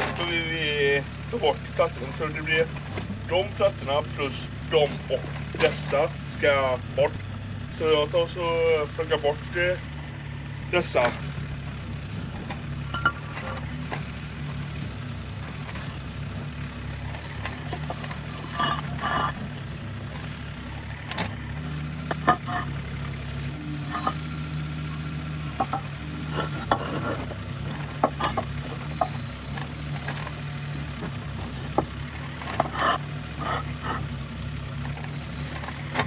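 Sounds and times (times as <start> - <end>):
slabs scraping on gravel: 17.0 - 22.8, 23.4 - 24.3, 25.6 - 29.0, 31.0 - 34.2
concrete clacking on concrete: 31.7 - 34.0.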